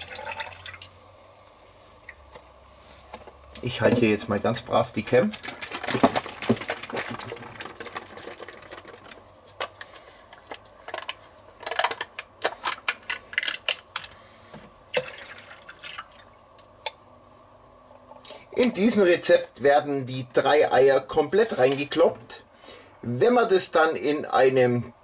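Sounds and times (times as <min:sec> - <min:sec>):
liquid pouring into metal bowl: 0:00.0 - 0:00.9.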